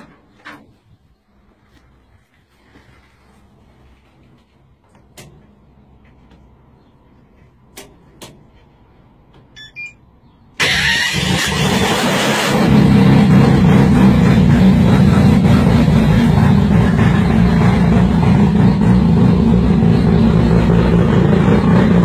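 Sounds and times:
car engine starting and running: 10.6 - 22.0.

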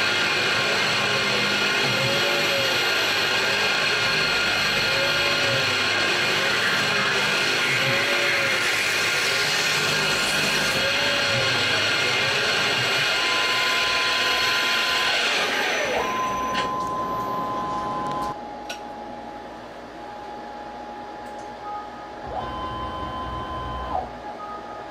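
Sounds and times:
mill cutting metal whine: 0.0 - 18.0.

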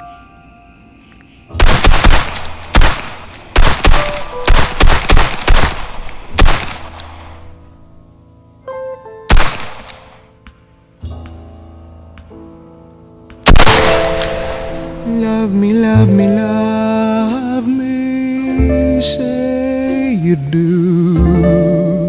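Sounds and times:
background music: 0.0 - 22.0
pistol gunshots: 1.6 - 7.6, 9.3 - 10.2, 13.4 - 15.1.

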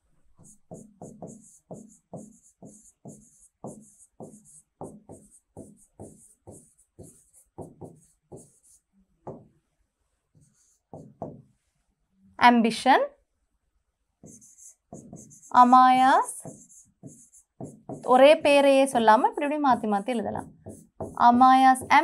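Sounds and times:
pen scratching on whiteboard: 0.4 - 9.5, 10.4 - 11.5, 14.2 - 22.0.

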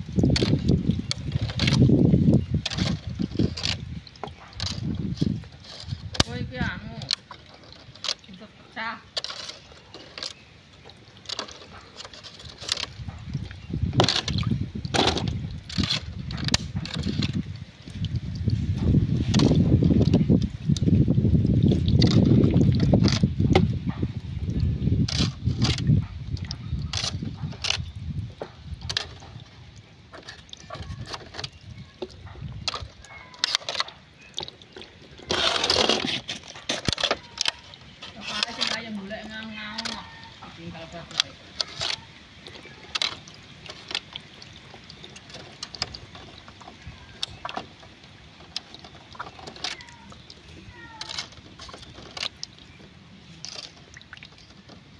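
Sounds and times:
water splashing and dripping: 0.0 - 54.9
clicks and knocks against plastic: 0.2 - 8.4, 9.1 - 18.2, 18.8 - 20.9, 30.1 - 52.8.

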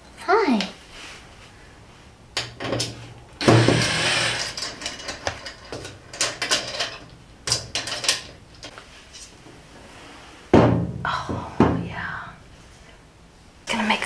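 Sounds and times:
cordless drill whirring: 3.4 - 4.6.

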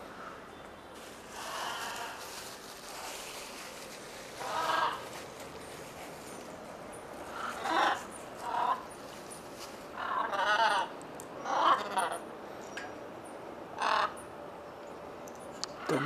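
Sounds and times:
macaws calling: 1.3 - 3.4, 4.3 - 5.3, 7.2 - 9.2, 9.9 - 12.2, 13.8 - 14.3.

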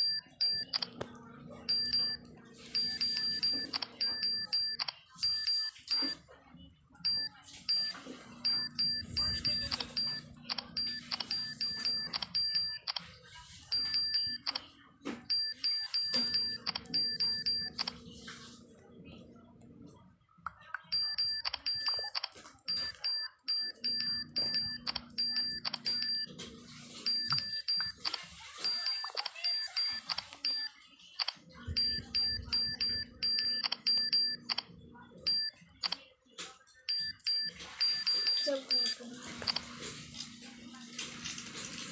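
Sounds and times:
phone keyboard key-press ticks: 20.5 - 26.2, 27.1 - 34.7.

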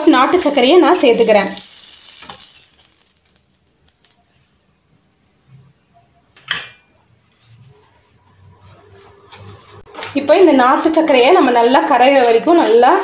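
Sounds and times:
metal utensil clattering against pan: 6.4 - 7.0.

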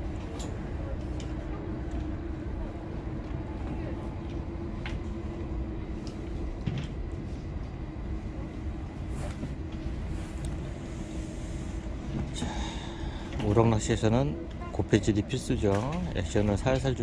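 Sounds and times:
constant hum: 0.0 - 17.0.

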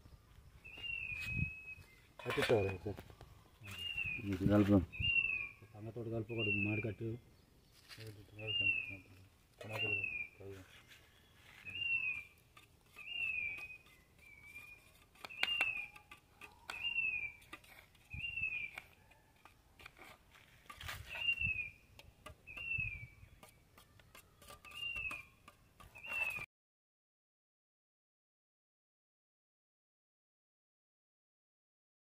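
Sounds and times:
bird whistling: 0.6 - 2.1, 3.6 - 5.7, 6.3 - 6.9, 8.5 - 9.0, 9.6 - 10.4, 11.4 - 17.5, 18.1 - 18.8, 21.0 - 21.9, 22.5 - 26.4
spoon beating eggs in bowl: 12.5 - 21.3, 22.0 - 26.4.

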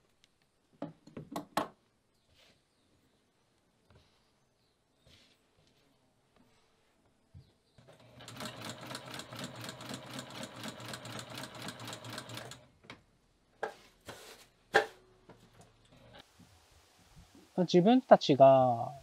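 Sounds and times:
sewing machine stitching: 7.8 - 12.6.

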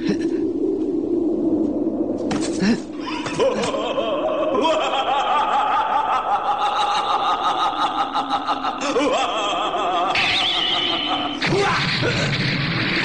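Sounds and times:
high-pitched cackling laugh: 3.1 - 11.4.

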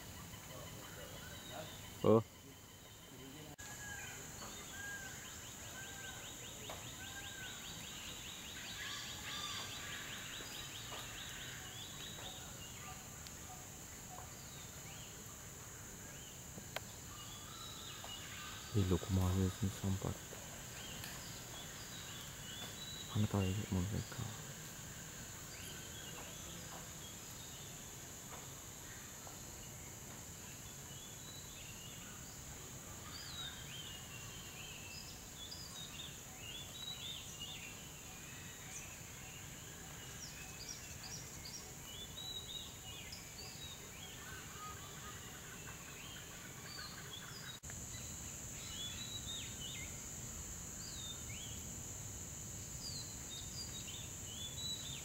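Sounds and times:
high insect drone: 0.0 - 55.0.

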